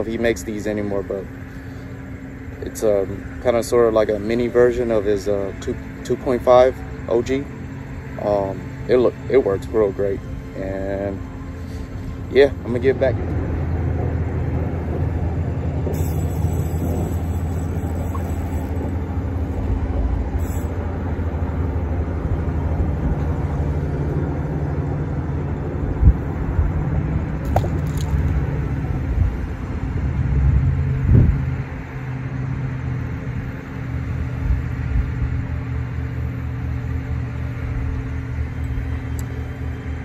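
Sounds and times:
motor rumbling: 0:00.0 - 0:31.4.

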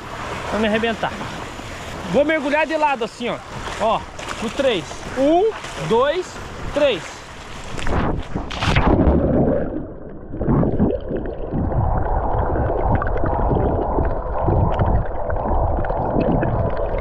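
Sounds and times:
underwater rumbling and gurgling: 0:00.0 - 0:17.0
bubble pops: 0:08.5 - 0:17.0.

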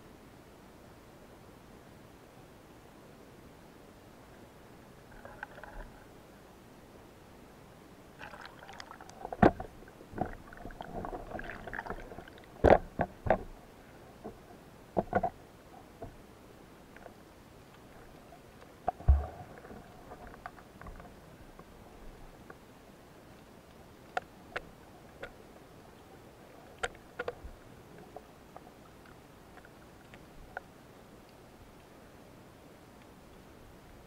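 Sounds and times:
water splashing and sloshing: 0:05.0 - 0:06.1, 0:08.2 - 0:16.2, 0:16.9 - 0:21.7
heavy thump: 0:19.0 - 0:19.4.

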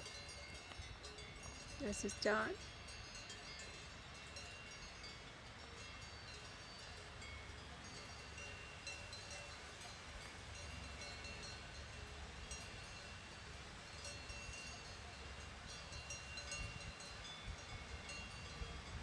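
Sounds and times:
livestock bells clinking: 0:00.0 - 0:19.0
wind rumble on microphone: 0:09.2 - 0:19.0.

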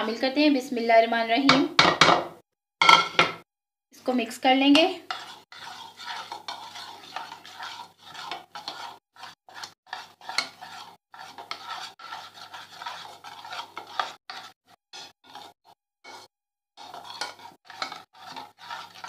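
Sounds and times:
spoon scraping a bowl: 0:04.7 - 0:19.0.

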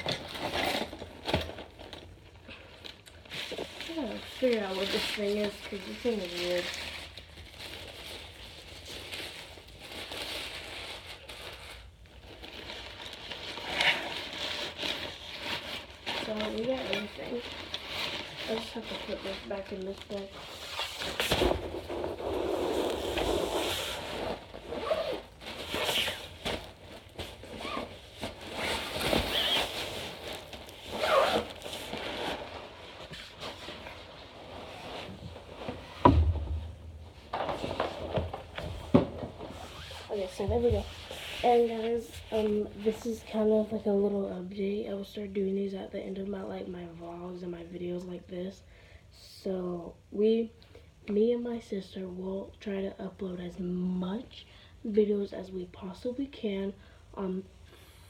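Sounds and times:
nylon bag rustling and crinkling: 0:00.0 - 0:43.8.

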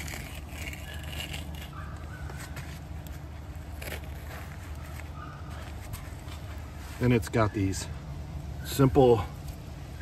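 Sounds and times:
tent stake scraping in dirt: 0:00.0 - 0:07.1.

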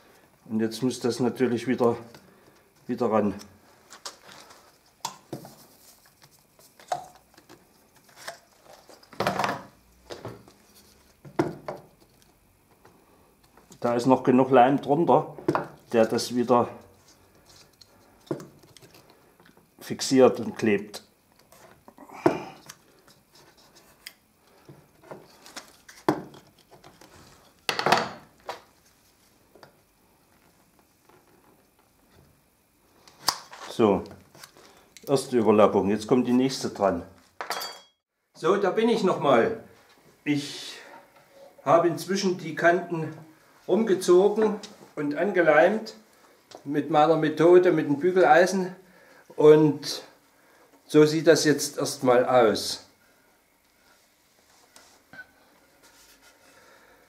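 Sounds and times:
tools set down on wooden workbench: 0:09.1 - 0:10.5, 0:27.7 - 0:28.6, 0:37.4 - 0:38.0.

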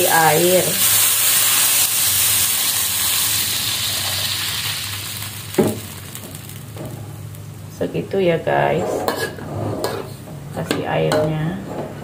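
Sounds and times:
water sizzling in a hot wok: 0:00.0 - 0:07.6.

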